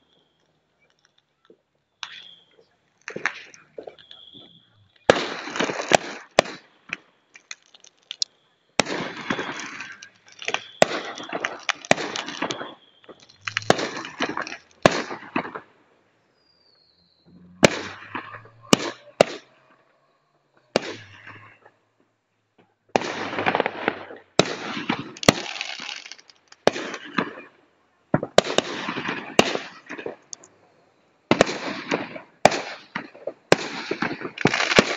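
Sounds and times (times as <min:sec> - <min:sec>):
firework whistle: 0:02.0 - 0:15.6, 0:16.4 - 0:19.8
fireworks bangs and crackling: 0:02.0 - 0:15.8, 0:17.5 - 0:19.5, 0:20.7 - 0:21.7, 0:22.9 - 0:30.4, 0:31.3 - 0:34.9.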